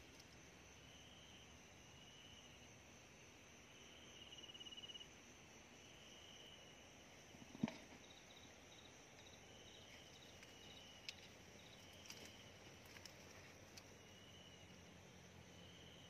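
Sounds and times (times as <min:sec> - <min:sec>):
insects trilling: 0:03.8 - 0:16.0.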